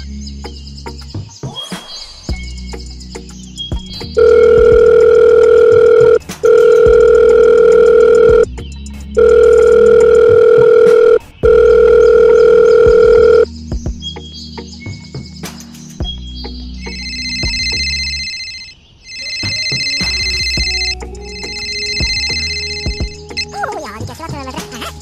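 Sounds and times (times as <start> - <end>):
telephone ringing tone beeps: 4.2 - 8.5, 9.2 - 13.5, 16.9 - 23.5.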